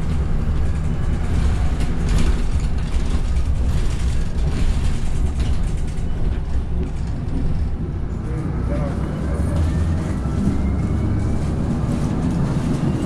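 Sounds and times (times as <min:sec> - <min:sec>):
bus engine and road rumble: 0:00.0 - 0:13.0
rattles and clatter of bus fittings: 0:00.0 - 0:13.0.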